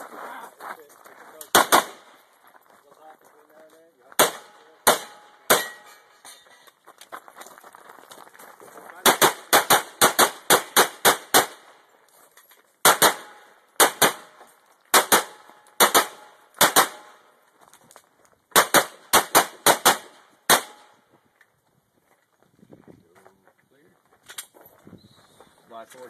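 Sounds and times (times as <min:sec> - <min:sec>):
pistol shots: 0:01.5 - 0:02.1, 0:04.2 - 0:06.0, 0:09.0 - 0:11.7, 0:12.8 - 0:17.2, 0:18.5 - 0:21.0.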